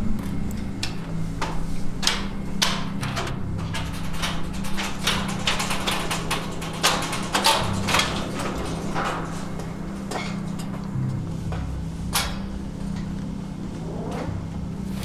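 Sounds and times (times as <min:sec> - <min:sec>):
steady low hum: 0:00.0 - 0:15.0
footsteps: 0:07.6 - 0:13.9.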